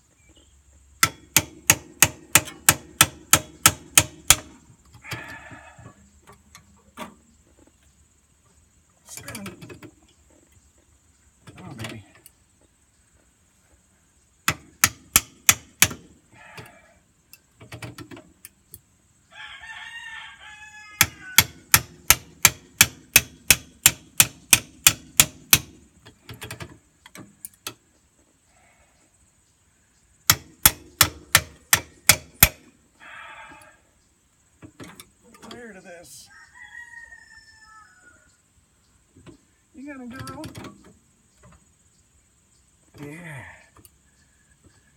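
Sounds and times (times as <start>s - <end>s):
hammer striking metal: 1.0s - 4.5s, 21.4s - 25.7s, 30.3s - 32.6s
rooster crowing: 5.0s - 6.0s, 19.3s - 21.7s, 33.0s - 33.9s, 36.2s - 38.4s.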